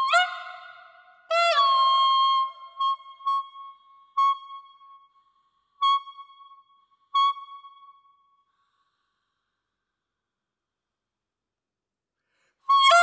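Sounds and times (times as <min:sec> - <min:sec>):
reedy clarinet mouthpiece tone: 0:12.7 - 0:13.0.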